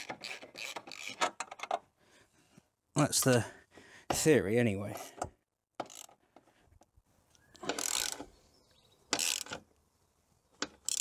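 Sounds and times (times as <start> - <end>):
ratchet wrench clicking: 5.8 - 6.2, 7.6 - 8.2, 9.1 - 9.6, 10.6 - 11.0.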